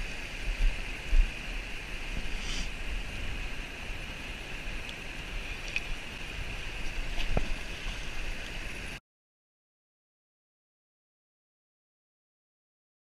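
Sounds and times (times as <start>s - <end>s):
river water rushing: 0.0s - 9.0s
faint ticks: 5.6s - 6.0s.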